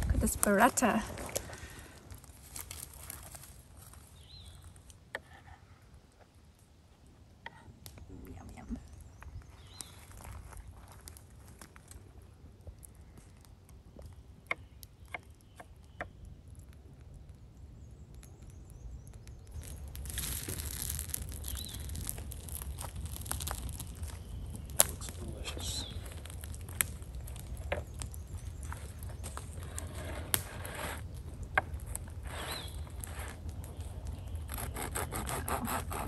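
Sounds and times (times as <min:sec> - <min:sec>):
outdoor ambience: 0:00.0 - 0:36.0.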